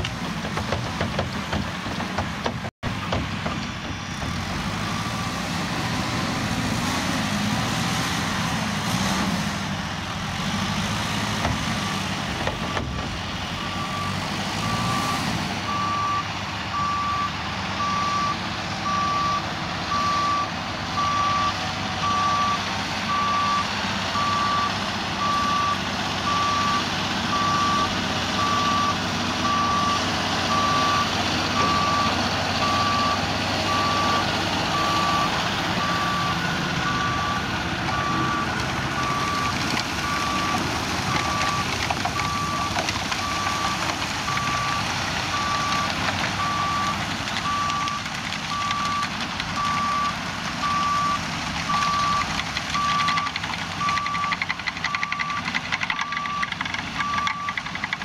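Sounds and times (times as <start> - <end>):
diesel tractors running: 0.0 - 58.0
reversing alarm beeping: 13.6 - 57.6.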